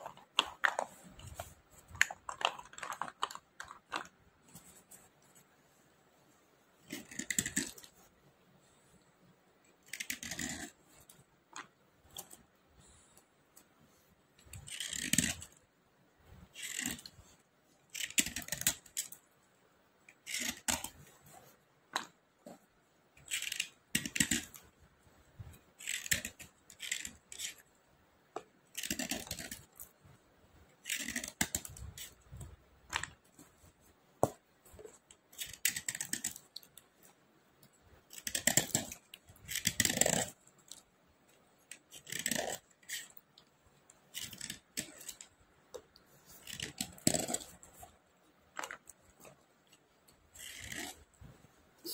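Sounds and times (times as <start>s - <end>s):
slate pencils scraping: 0.0s - 5.5s, 6.8s - 8.1s, 9.8s - 13.2s, 13.9s - 15.6s, 16.4s - 19.2s, 20.1s - 24.8s, 25.4s - 27.7s, 28.7s - 30.0s, 30.8s - 33.8s, 34.7s - 37.1s, 38.0s - 40.9s, 41.7s - 43.2s, 44.1s - 45.4s, 46.0s - 48.0s, 48.6s - 51.2s.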